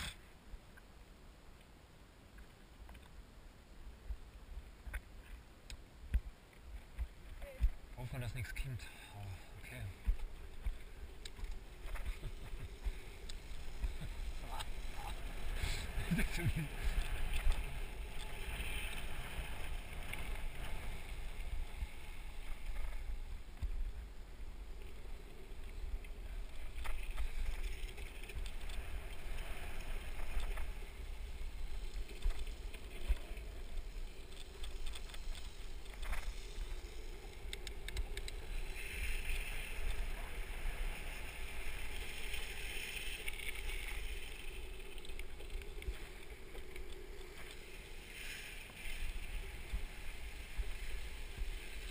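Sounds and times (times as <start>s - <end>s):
board wheels rolling on asphalt: 3.9s - 51.9s
faint click: 4.8s - 6.6s.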